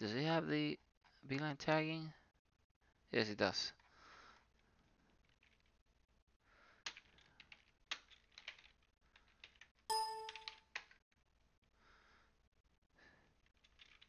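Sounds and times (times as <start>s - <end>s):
electronic alert chime: 9.9s - 10.6s
keyboard key clicks: 9.9s - 10.6s.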